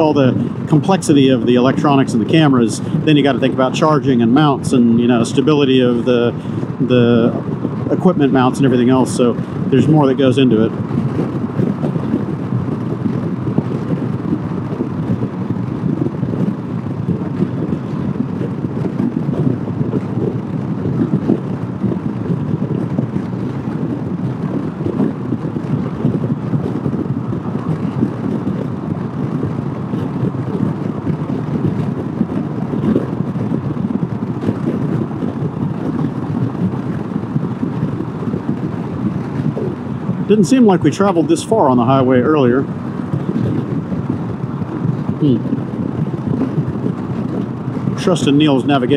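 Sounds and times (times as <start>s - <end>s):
scooter road noise: 0.0s - 48.9s
wind noise on microphone: 0.0s - 48.9s.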